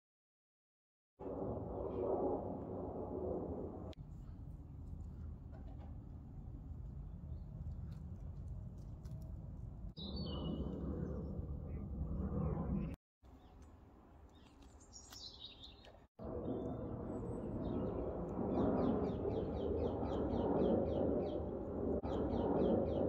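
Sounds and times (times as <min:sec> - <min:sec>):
outdoor background noise: 0:01.2 - 0:23.0
bird chirping: 0:10.0 - 0:11.9, 0:13.3 - 0:23.0.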